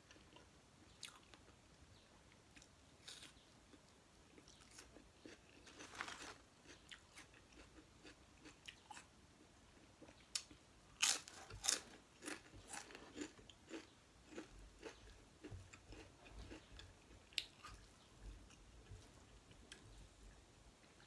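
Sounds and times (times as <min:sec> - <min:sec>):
wet chewing clicks and smacks: 0:12.2 - 0:17.8.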